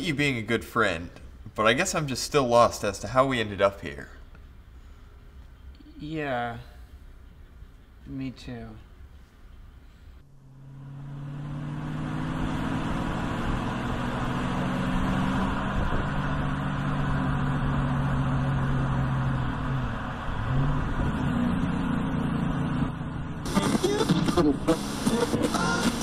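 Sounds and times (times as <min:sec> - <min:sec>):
road noise: 0:00.0 - 0:26.0
car engine hum: 0:09.0 - 0:26.0.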